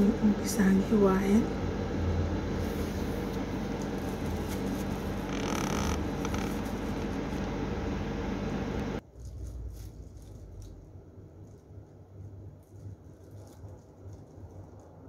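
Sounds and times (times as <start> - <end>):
low rumbling background noise: 0.0 - 15.0.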